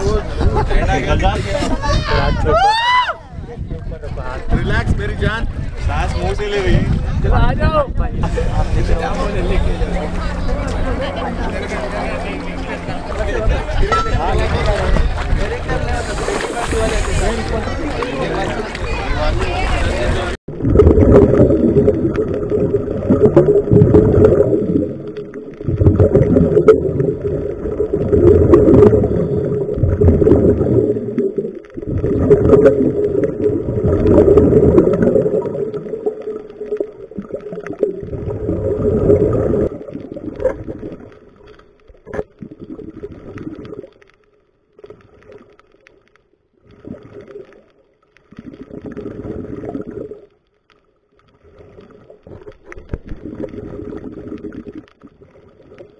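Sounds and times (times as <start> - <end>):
underwater regulator bubbles gurgling: 20.5 - 44.2, 44.8 - 55.9.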